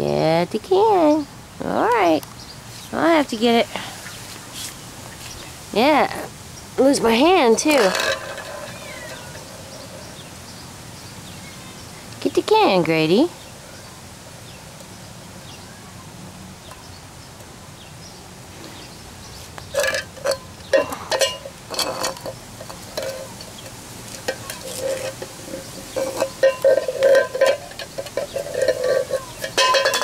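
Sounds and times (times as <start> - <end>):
metallic clanks and scrapes: 7.0 - 10.2, 19.7 - 30.0.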